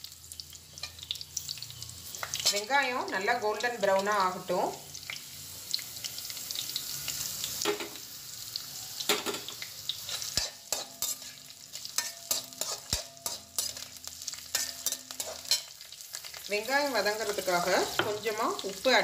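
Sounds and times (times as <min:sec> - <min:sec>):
onions sizzling in oil: 0:00.0 - 0:19.0
steel spoon scraping a pan: 0:00.7 - 0:02.8, 0:09.0 - 0:16.5.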